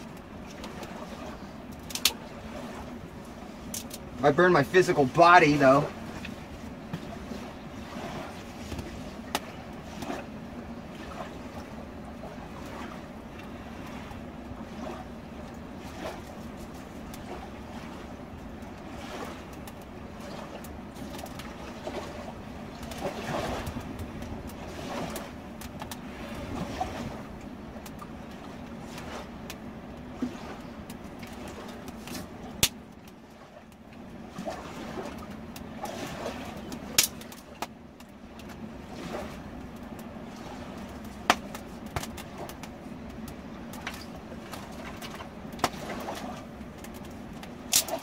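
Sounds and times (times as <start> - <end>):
river water rushing: 0.0 - 19.5
campfire crackling: 0.0 - 48.0.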